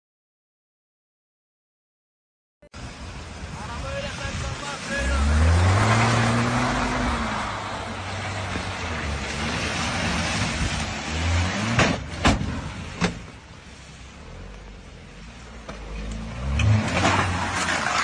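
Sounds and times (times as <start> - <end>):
hiss from wet road: 2.8 - 17.4
car engine revving hard: 4.6 - 13.0, 15.8 - 18.0
car striking a wall: 11.6 - 13.4.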